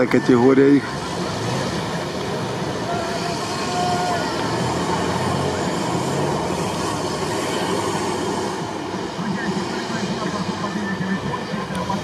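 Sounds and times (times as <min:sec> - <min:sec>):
truck engine revving hard: 0:00.8 - 0:09.2.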